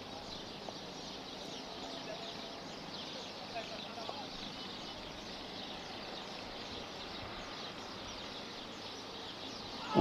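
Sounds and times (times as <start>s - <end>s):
small birds chirping: 0.0s - 10.0s
steady low hiss: 0.0s - 10.0s.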